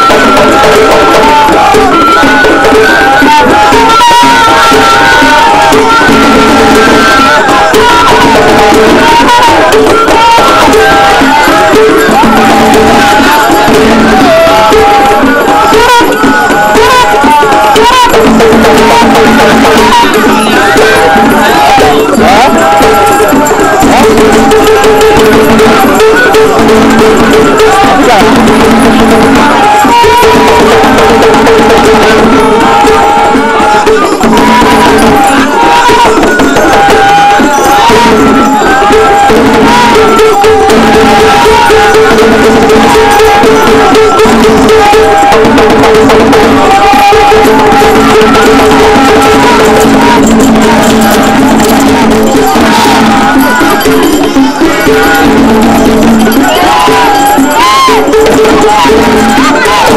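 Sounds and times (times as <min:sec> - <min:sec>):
drums beating: 0:00.0 - 0:59.9
held sung notes: 0:00.0 - 0:59.9.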